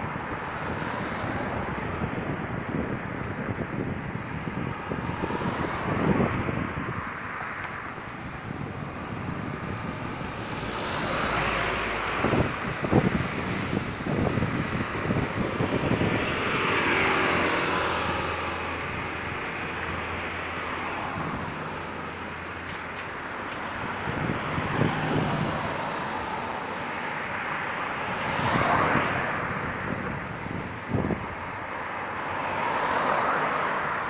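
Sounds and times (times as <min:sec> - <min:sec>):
vehicles passing on road: 0:00.0 - 0:34.0.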